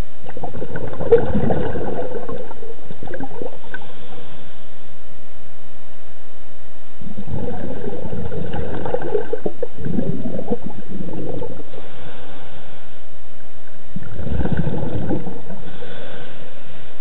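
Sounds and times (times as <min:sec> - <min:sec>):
exhaled bubbles gurgling: 0:00.0 - 0:04.4, 0:07.0 - 0:12.6, 0:13.4 - 0:17.0
diver breathing through regulator: 0:03.1 - 0:04.9, 0:07.2 - 0:13.1, 0:14.0 - 0:17.0.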